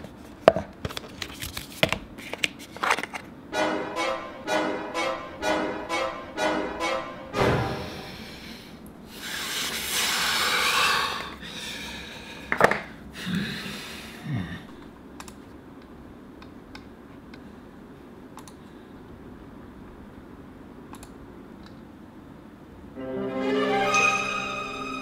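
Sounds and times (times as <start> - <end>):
faint computer mouse clicks: 18.4 - 18.6, 20.9 - 21.8.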